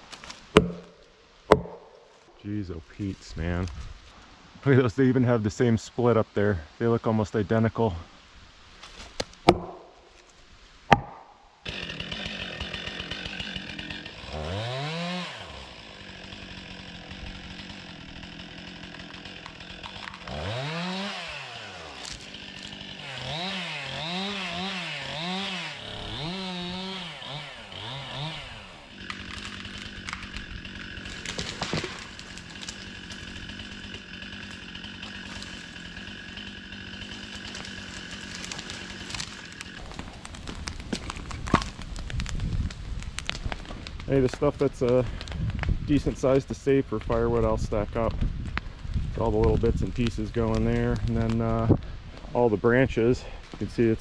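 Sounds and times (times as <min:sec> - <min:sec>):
sharp knocks: 0:00.5 - 0:02.0, 0:09.5 - 0:09.9, 0:10.9 - 0:11.3
chainsaw revving: 0:11.6 - 0:41.8.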